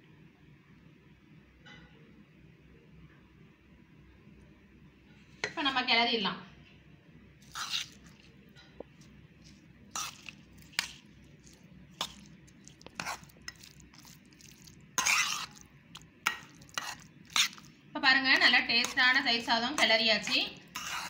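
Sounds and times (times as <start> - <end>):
rice squelching: 7.4 - 21.0
metal spoon scraping steel pot: 7.5 - 8.1, 9.9 - 11.0, 12.8 - 14.0, 15.0 - 15.6, 16.2 - 17.7, 18.3 - 21.0.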